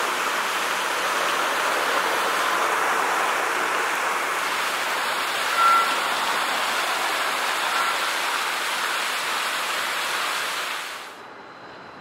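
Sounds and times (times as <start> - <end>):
road traffic hiss: 0.0 - 12.0.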